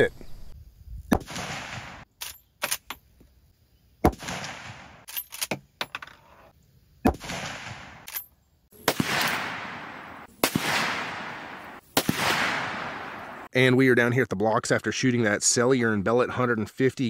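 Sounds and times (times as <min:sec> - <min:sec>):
rifle shots: 0:01.1 - 0:02.0, 0:04.0 - 0:05.0, 0:07.1 - 0:08.1, 0:08.8 - 0:13.5.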